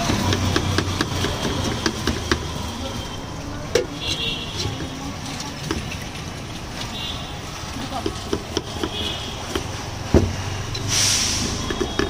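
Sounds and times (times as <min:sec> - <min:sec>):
knife chopping on wooden board: 0:00.0 - 0:02.5, 0:08.0 - 0:10.4
street traffic: 0:00.0 - 0:12.0.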